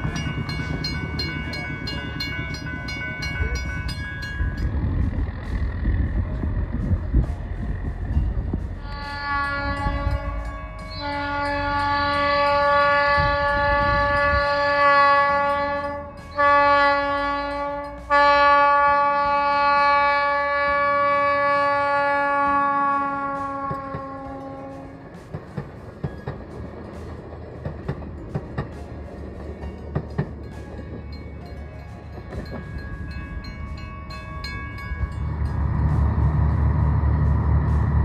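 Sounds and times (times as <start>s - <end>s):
railcar horn blasts: 8.7s - 25.2s
wheels clicking over rail joints: 23.1s - 38.0s.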